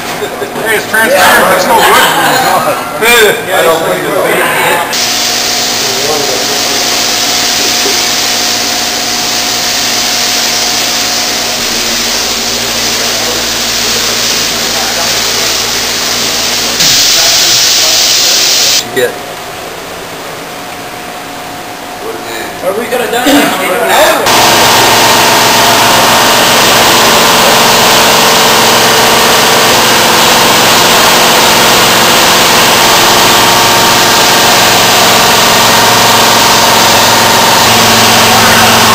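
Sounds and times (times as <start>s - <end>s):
steady hum: 4.7s - 38.9s
paint spray gun hissing: 4.9s - 18.8s, 24.3s - 38.9s
high steady tone: 5.0s - 18.9s.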